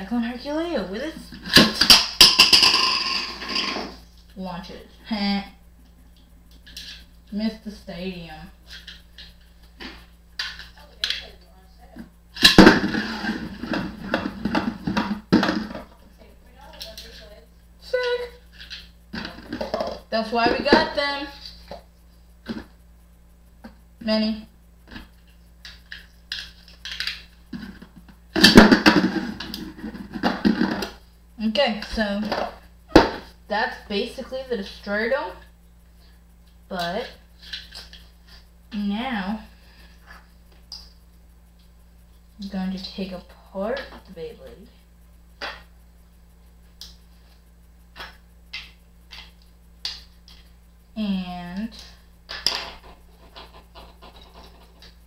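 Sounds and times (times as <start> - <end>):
spinning top clattering on plastic: 1.4 - 4.0, 24.8 - 31.0, 51.7 - 55.0.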